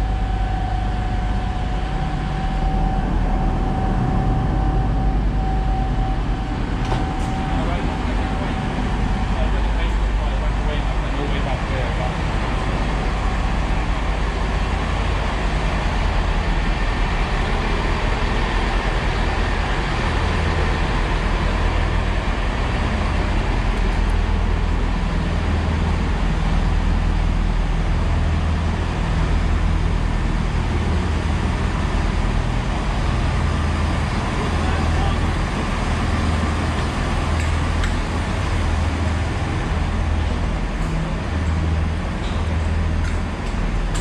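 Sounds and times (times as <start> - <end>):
train diesel engines idling: 0.0 - 44.0.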